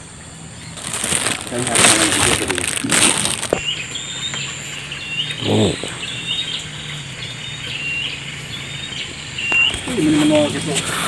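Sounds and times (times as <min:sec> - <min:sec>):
small bird chirping: 0:00.0 - 0:11.0
microphone handling rustle: 0:00.8 - 0:03.7.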